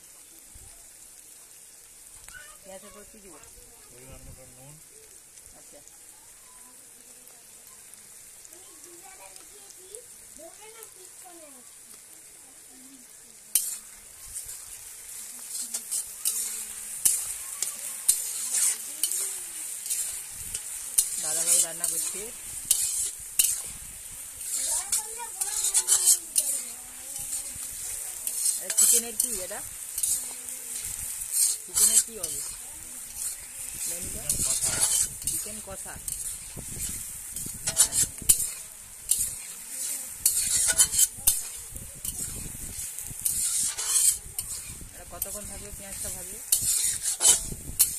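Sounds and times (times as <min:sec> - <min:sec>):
onions sizzling in hot oil: 0:00.0 - 0:47.9
metal spatula scraping a pan: 0:13.5 - 0:47.9.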